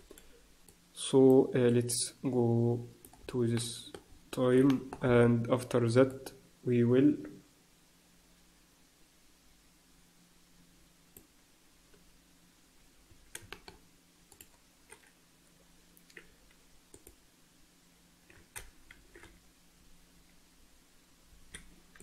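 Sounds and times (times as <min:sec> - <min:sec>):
faint low hum: 0:00.0 - 0:22.0
keyboard and mouse clicks: 0:13.1 - 0:15.1, 0:16.0 - 0:17.2, 0:18.2 - 0:19.4, 0:21.5 - 0:22.0.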